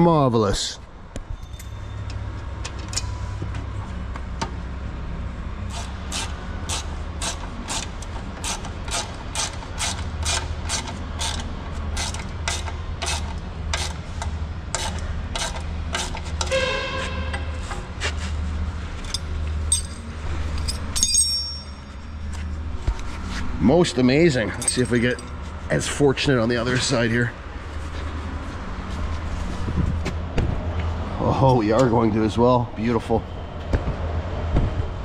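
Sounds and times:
steady low hum: 0.0 - 35.0
ratchet wrench clicking: 5.7 - 16.5.

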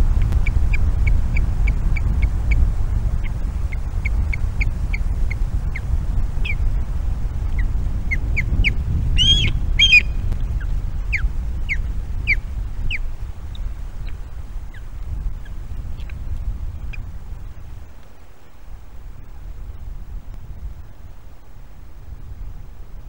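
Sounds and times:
wind rumble on microphone: 0.0 - 23.0
ospreys piping chirps: 7.4 - 16.2
harsh bird calls: 7.6 - 13.6.

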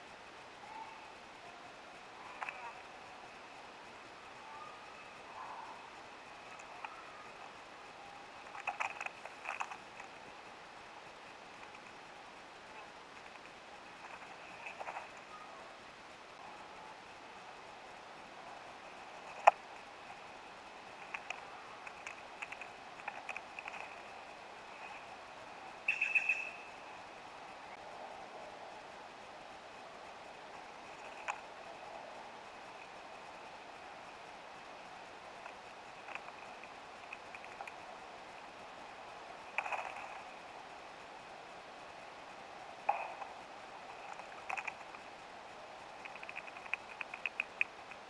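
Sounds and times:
faint outdoor hiss: 0.0 - 48.0.

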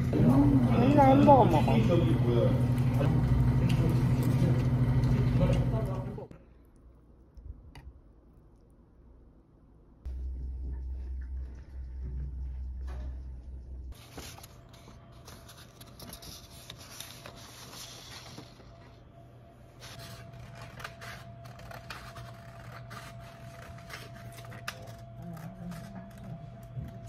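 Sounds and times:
paper rustling: 14.0 - 19.0, 19.8 - 27.0
printer feeding paper: 14.0 - 19.0
scissors cutting paper: 19.8 - 27.0.

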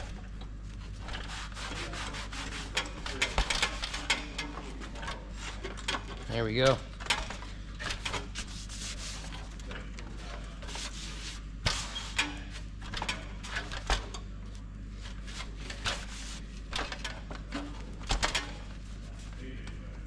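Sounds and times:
low shop hum: 0.0 - 20.0
gloved hands rubbing on steel: 1.0 - 2.9, 8.3 - 9.4, 10.6 - 12.2.

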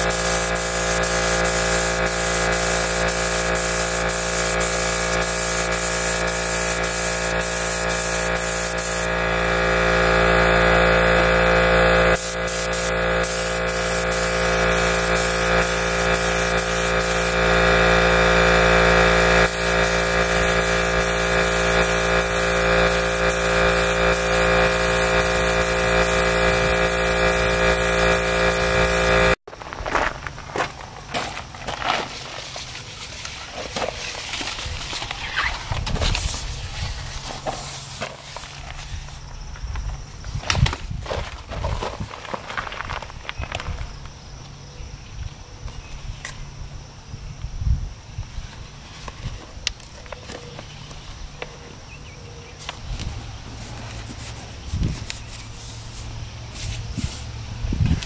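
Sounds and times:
paint sprayer motor whine: 0.0 - 29.4
paint spraying hiss: 0.0 - 29.4.

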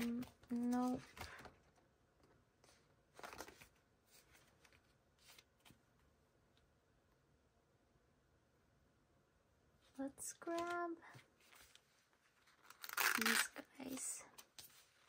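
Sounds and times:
paper rustling: 0.0 - 1.8, 2.6 - 5.8, 10.5 - 15.0.

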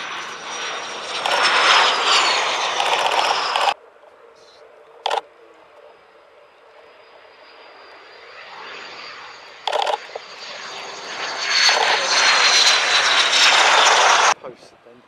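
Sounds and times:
loud burst of noise: 1.2 - 3.8
jet engine whistle: 7.0 - 14.4.

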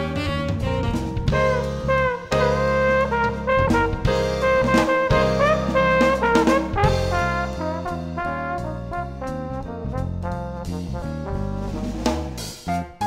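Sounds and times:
upbeat brass band music: 0.0 - 13.0.

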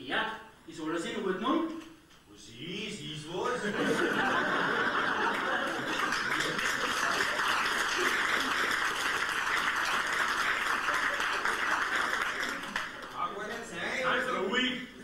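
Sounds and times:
audience laughing: 3.6 - 13.2
audience clapping: 4.7 - 13.6.

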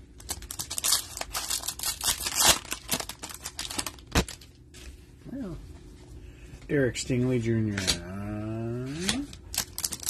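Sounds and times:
wrapper crinkling and tearing: 0.2 - 4.5, 9.0 - 10.0.

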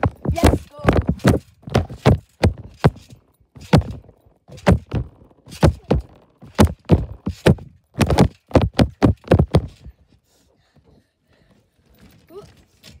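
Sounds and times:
dull thumps: 0.0 - 10.0.

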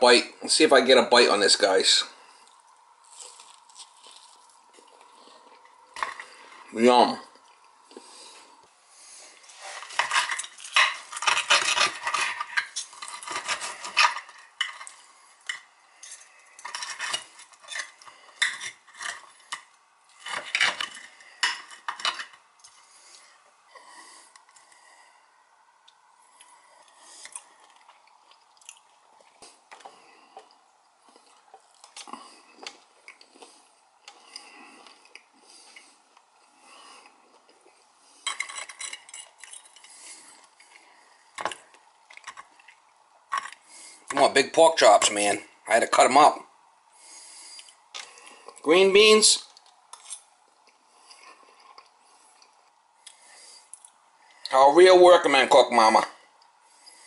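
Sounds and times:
knife and fork scraping a plate: 9.7 - 15.0, 16.0 - 19.6.

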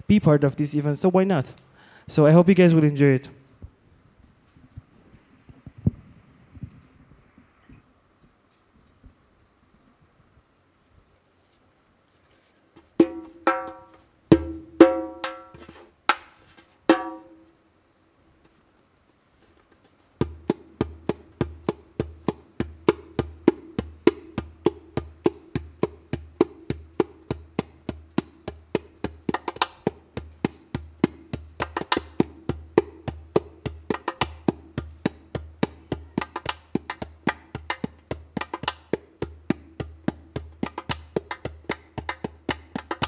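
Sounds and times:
djembe hand strokes: 12.2 - 17.5.

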